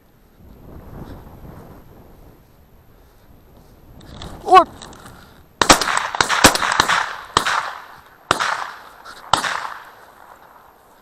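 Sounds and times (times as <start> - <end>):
shotgun shots echoing: 5.6 - 10.8.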